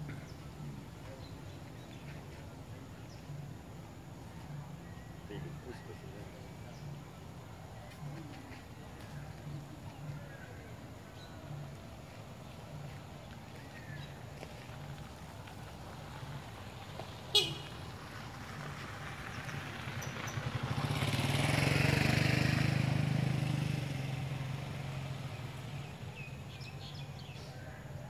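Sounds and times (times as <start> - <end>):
vehicle passing by: 0.0 - 27.6.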